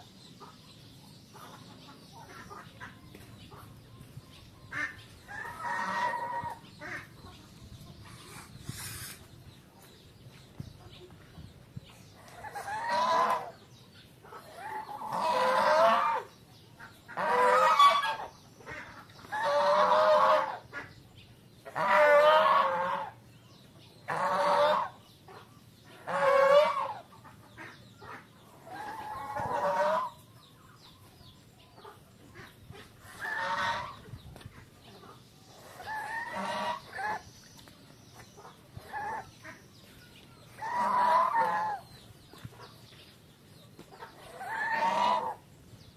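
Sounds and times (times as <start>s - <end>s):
geese honking: 4.7s - 7.2s, 12.4s - 13.5s, 14.4s - 20.9s, 21.6s - 23.2s, 24.1s - 25.0s, 26.0s - 30.2s, 32.3s - 34.1s, 35.6s - 37.3s, 40.5s - 42.0s, 44.1s - 45.4s.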